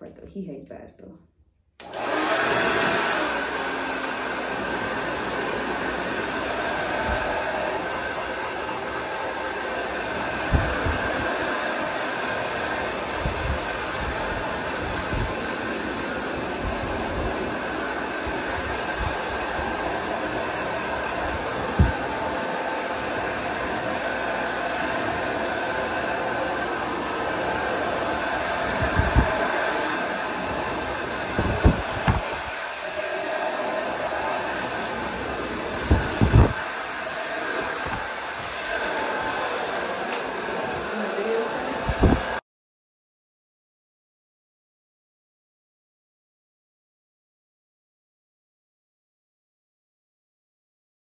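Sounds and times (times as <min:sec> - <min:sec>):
hair dryer running: 0:01.8 - 0:42.4.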